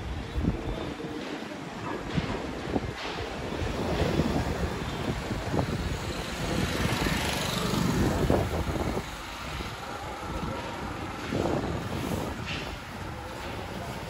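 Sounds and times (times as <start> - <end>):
small vehicle engine running: 5.2 - 13.8.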